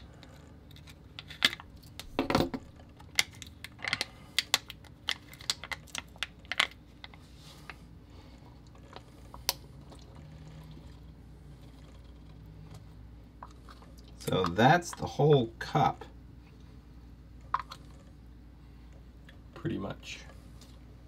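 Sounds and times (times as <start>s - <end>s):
low steady hum: 0.0s - 21.0s
plastic cup clicking and crackling: 2.8s - 7.2s.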